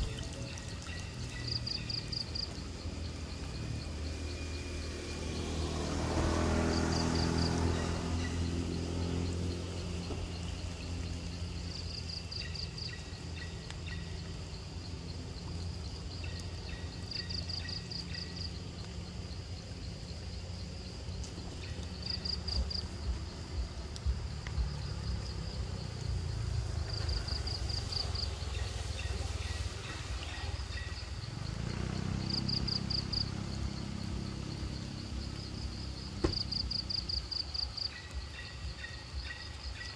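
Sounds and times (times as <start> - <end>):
faint water splashes: 0.0 - 2.7
low engine rumble: 0.0 - 39.9.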